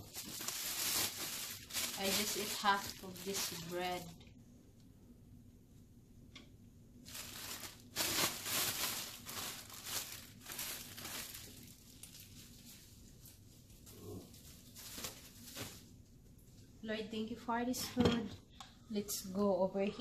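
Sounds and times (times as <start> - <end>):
plastic bag crinkling: 0.0 - 4.2, 7.1 - 15.9.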